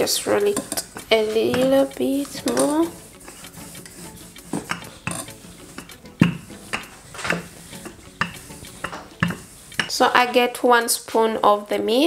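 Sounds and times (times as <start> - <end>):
rolling pin knocking on a board: 4.5 - 9.9.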